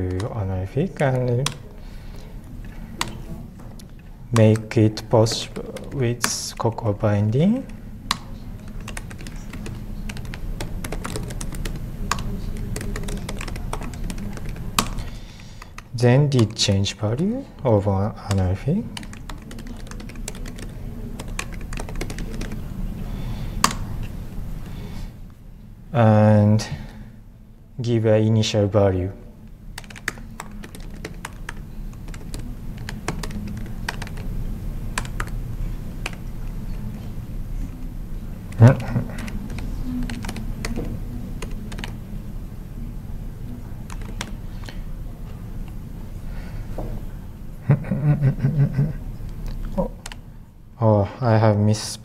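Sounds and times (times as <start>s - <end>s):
laptop keyboard typing: 0.0s - 24.2s, 29.7s - 42.2s, 43.5s - 44.8s, 49.3s - 50.2s
low room hum: 0.0s - 52.0s.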